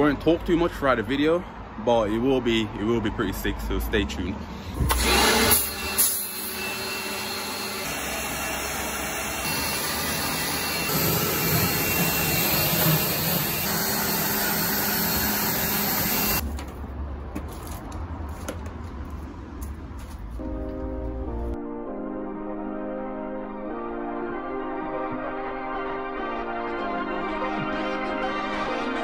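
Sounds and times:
pressure washer spraying water: 0:05.0 - 0:16.4.

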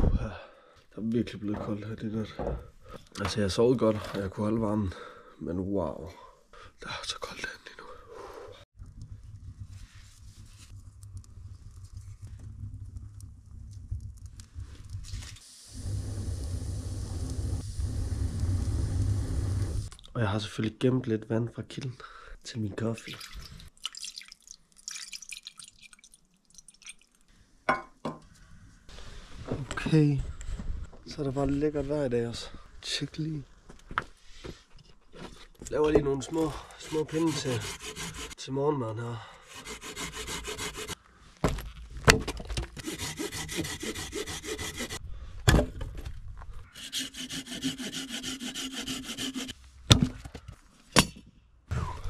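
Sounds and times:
water pouring into a metal pot: 0:23.0 - 0:27.2.

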